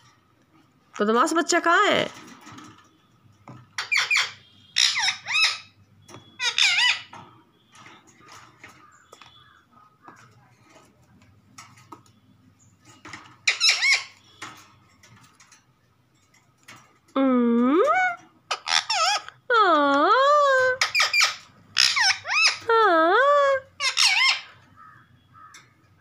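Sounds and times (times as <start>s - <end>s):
faint clicks and rustles: 0.0s - 3.9s, 7.1s - 17.2s
parakeet squawking: 3.8s - 7.2s, 13.4s - 14.3s, 17.9s - 19.4s, 20.4s - 25.6s.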